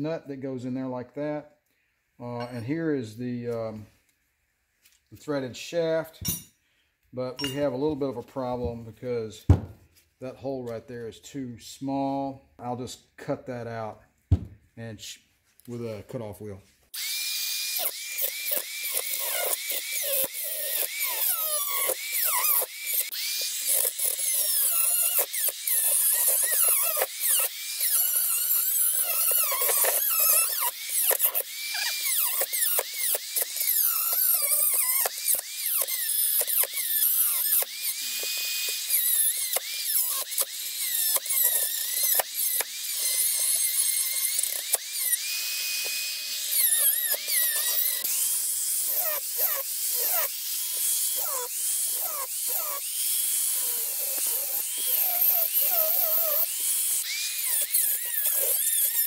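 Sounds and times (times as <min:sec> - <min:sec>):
rotary tool whining: 0:16.9 - 0:59.0.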